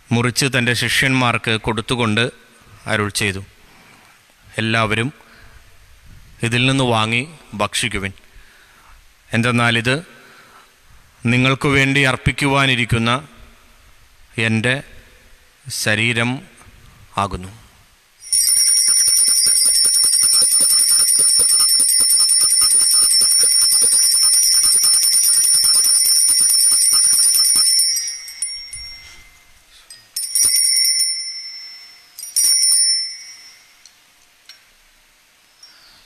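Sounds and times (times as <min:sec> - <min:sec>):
altar bells ringing: 0:18.2 - 0:34.0.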